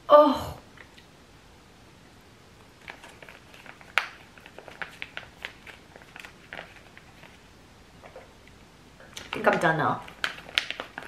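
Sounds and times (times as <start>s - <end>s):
drink pouch crinkling: 2.8s - 8.3s, 9.0s - 11.0s.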